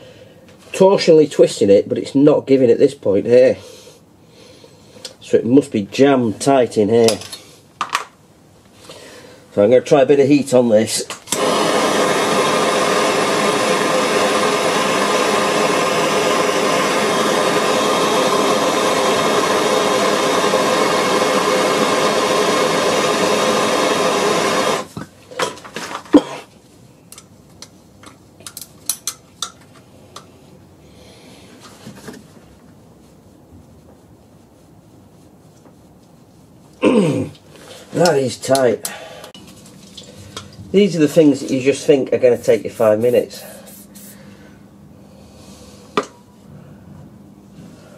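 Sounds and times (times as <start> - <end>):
blowtorch hissing: 11.2 - 25.0.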